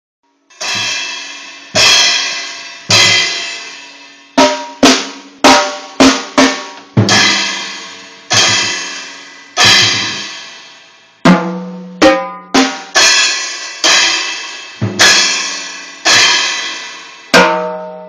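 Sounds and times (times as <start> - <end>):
cymbal and drum hits: 0.5 - 18.0
short drum hits: 9.6 - 10.3, 14.8 - 15.2.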